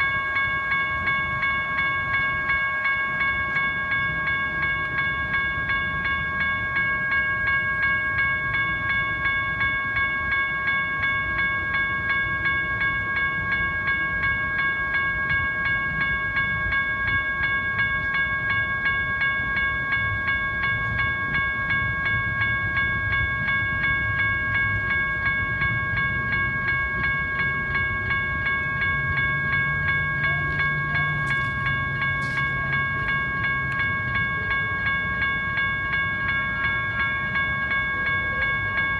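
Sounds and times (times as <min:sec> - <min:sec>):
railroad crossing bell ringing: 0:00.0 - 0:38.9.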